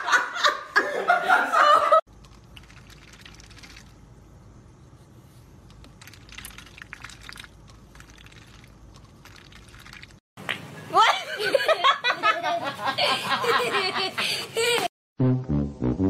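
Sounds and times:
person laughing and talking: 0:00.0 - 0:02.0, 0:10.9 - 0:14.9.

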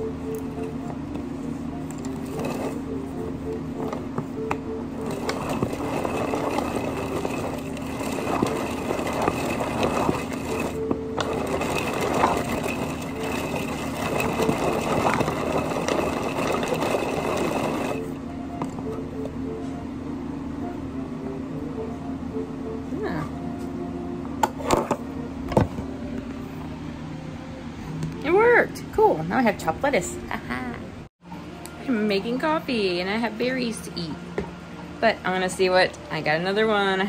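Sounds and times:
pull-cord chopper whirring: 0:05.0 - 0:18.1.

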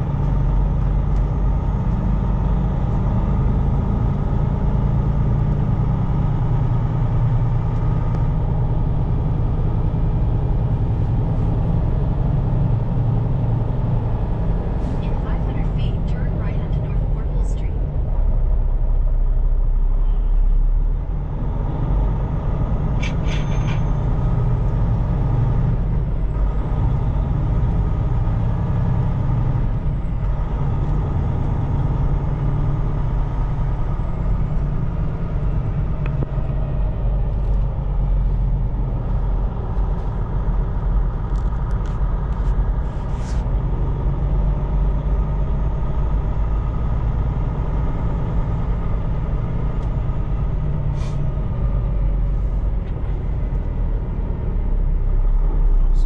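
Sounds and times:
diesel engine and road rumble: 0:00.0 - 0:56.0.

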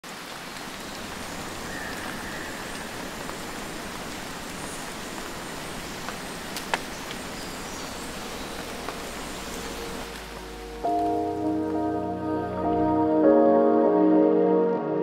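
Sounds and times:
steady rain falling: 0:00.0 - 0:13.4.

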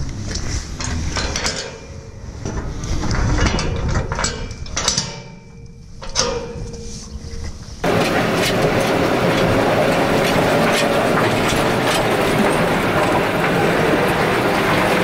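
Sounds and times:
metal gate clanking and rattling: 0:00.4 - 0:15.0
metal ringing: 0:03.3 - 0:13.6.

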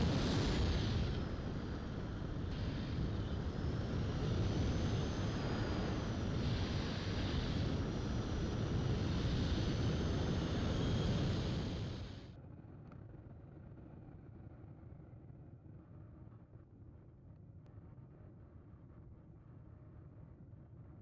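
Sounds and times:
heavy wind rush: 0:00.0 - 0:12.2
high electric motor whine: 0:00.0 - 0:12.3.

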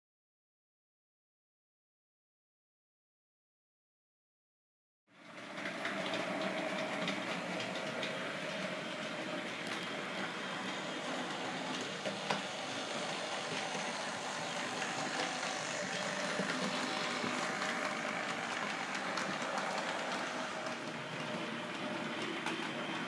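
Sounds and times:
model train motors whirring: 0:05.3 - 0:23.0.

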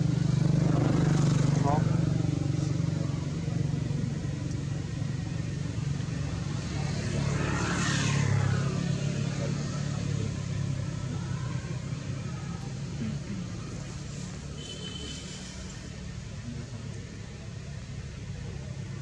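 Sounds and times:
low engine hum: 0:00.0 - 0:14.6
vehicle passing by: 0:00.0 - 0:16.5.

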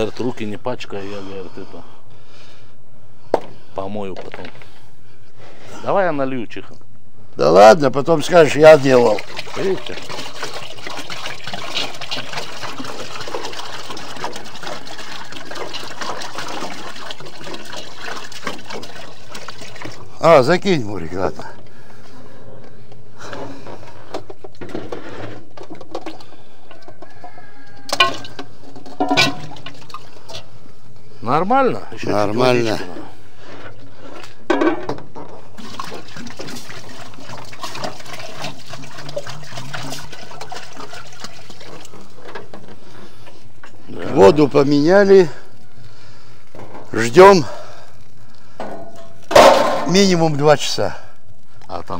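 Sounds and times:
water pouring into metal pot: 0:08.2 - 0:20.7, 0:27.2 - 0:30.5, 0:35.4 - 0:43.4.

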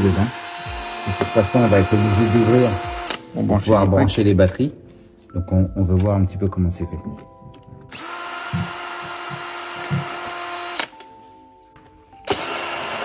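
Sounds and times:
cordless drill spinning: 0:00.0 - 0:03.2, 0:07.9 - 0:11.0, 0:12.2 - 0:13.0.

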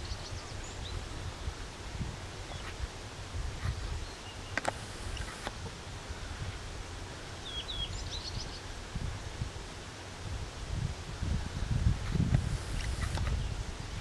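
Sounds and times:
wind rumbling on microphone: 0:00.0 - 0:14.0
sharp clicks: 0:04.6 - 0:05.6, 0:12.3 - 0:13.4
bird chirping: 0:07.4 - 0:08.6.

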